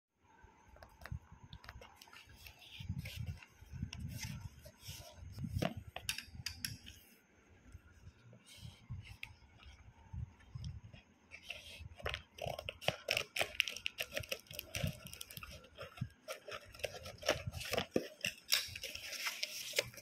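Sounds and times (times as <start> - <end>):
cardboard parcel rustling: 11.3 - 20.0.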